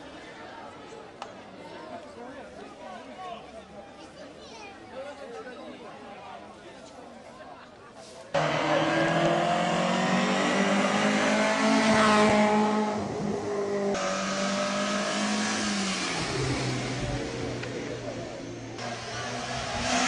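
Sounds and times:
racing car engines revving: 8.4 - 20.0.

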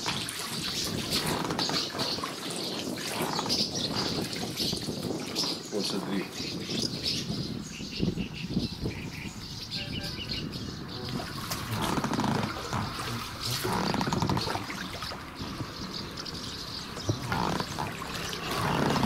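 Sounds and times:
water sloshing around boat: 0.0 - 7.4, 9.4 - 19.0
swallows twittering: 0.0 - 19.0
rough low sounds: 8.5 - 19.0.

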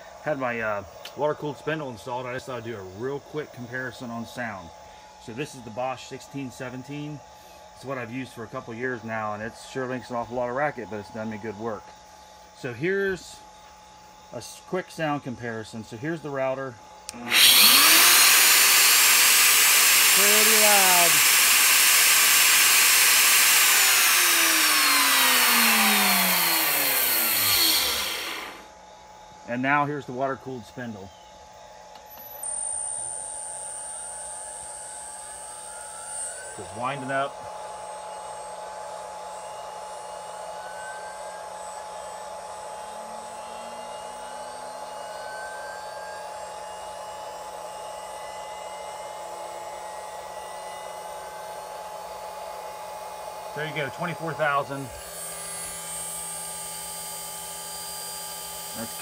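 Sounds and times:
router motor spinning down: 17.1 - 28.7, 34.2 - 47.4, 50.4 - 59.0
spindle winding up: 17.1 - 28.7.

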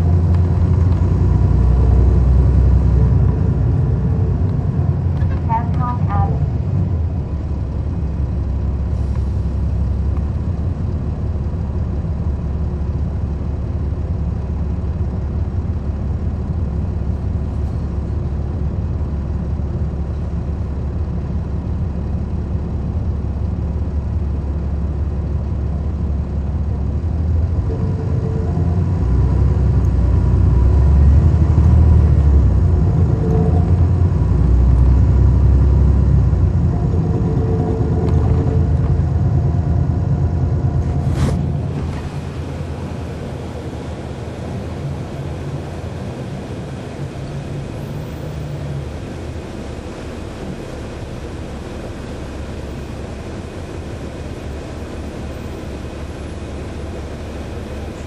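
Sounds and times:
bus diesel engine rumble: 0.0 - 58.0
faint whine: 27.6 - 58.0.

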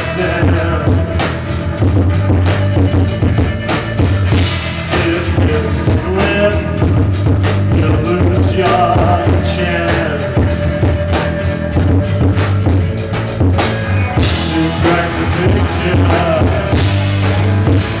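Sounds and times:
man singing: 0.0 - 1.8, 4.8 - 11.2, 14.1 - 18.0
drum kit beat: 0.0 - 18.0
electric guitars: 0.0 - 18.0
heavy bass line: 0.0 - 18.0.

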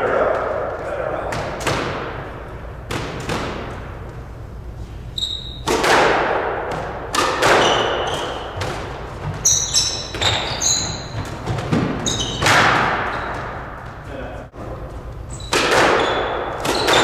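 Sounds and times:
squash ball hits echoing: 0.0 - 4.1, 5.4 - 14.8, 15.4 - 17.0
sneakers squeaking on hardwood: 5.0 - 5.8, 6.7 - 14.1, 14.8 - 17.0.

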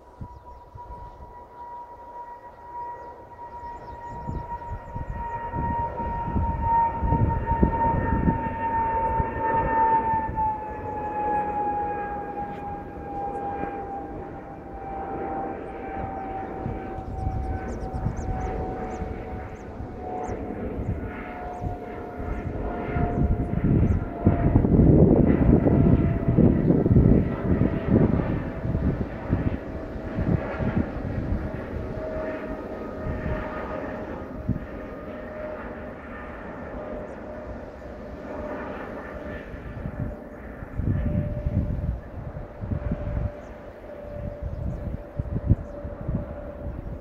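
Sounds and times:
jet engine fan whine: 0.0 - 47.0
low jet engine rumble: 0.0 - 47.0.

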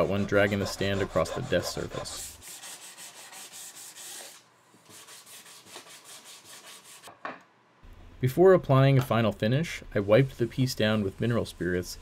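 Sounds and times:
sanding block rubbing wood: 0.0 - 7.1.

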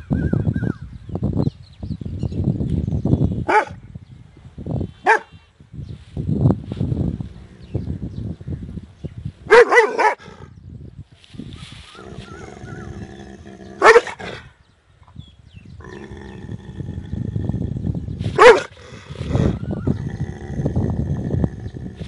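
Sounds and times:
dog barking aggressively: 3.5 - 3.8, 5.0 - 5.3, 9.5 - 10.4, 13.8 - 14.5, 18.4 - 18.8
dog growling: 15.8 - 18.0, 18.7 - 22.0.

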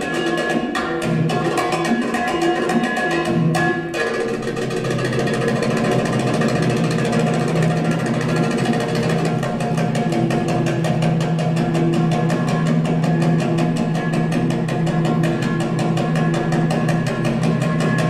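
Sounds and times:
fast darbuka drumming: 0.0 - 18.0.

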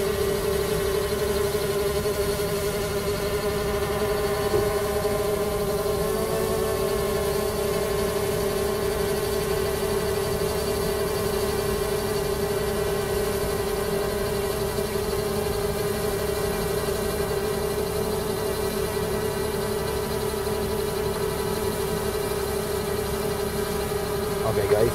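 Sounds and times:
drone propellers buzzing: 24.4 - 24.9.

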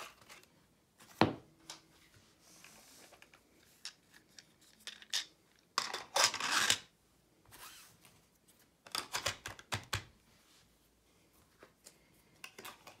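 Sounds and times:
clicks and taps of small objects: 8.9 - 10.1.

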